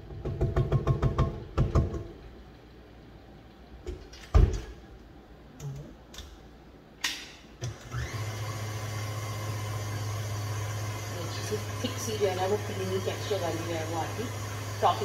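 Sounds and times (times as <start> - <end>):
stand mixer motor humming: 7.8 - 15.0.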